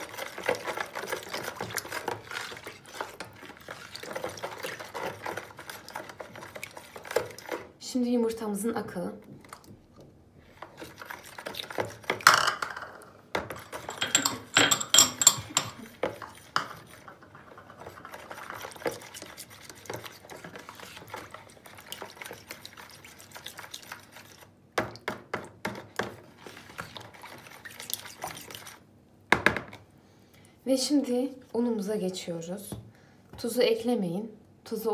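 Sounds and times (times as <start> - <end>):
liquid batter sloshing: 0.0 - 7.8, 9.2 - 12.3, 13.2 - 28.9.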